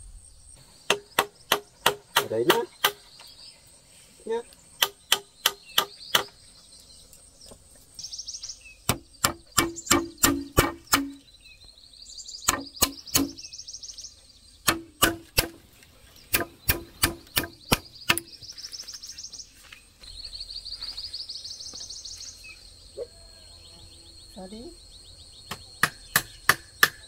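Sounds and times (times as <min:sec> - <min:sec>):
insects buzzing: 0:00.0 - 0:27.0
tool striking wood: 0:00.9 - 0:03.0, 0:04.8 - 0:06.3, 0:08.8 - 0:11.2, 0:12.5 - 0:13.4, 0:14.6 - 0:15.6, 0:16.3 - 0:18.4, 0:25.5 - 0:27.0.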